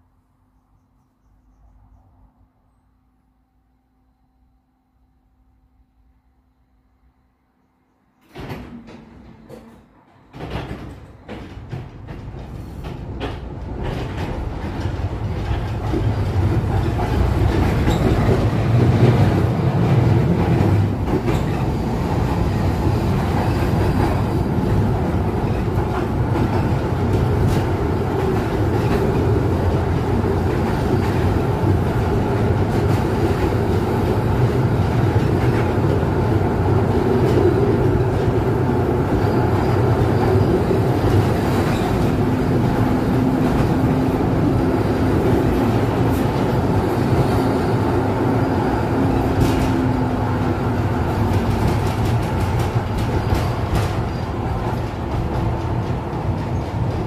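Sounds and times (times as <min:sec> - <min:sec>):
tram wheels rumbling on rail: 0:08.2 - 0:57.0.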